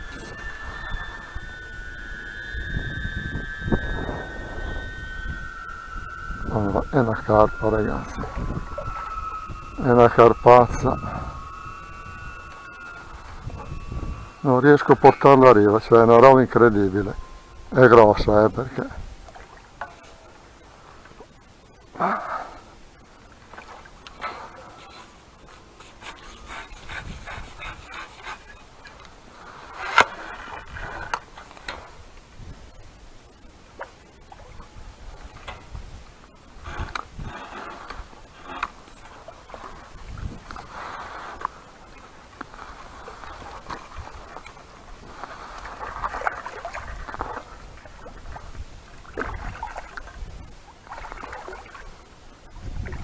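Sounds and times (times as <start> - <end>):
fish splashing and thrashing in water: 38.6 - 50.2, 50.8 - 52.0.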